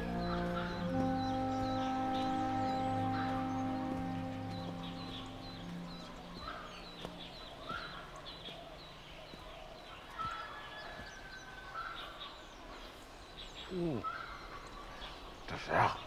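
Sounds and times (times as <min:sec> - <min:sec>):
poultry calling faintly: 0:00.0 - 0:04.5
small birds chirping: 0:00.0 - 0:16.0.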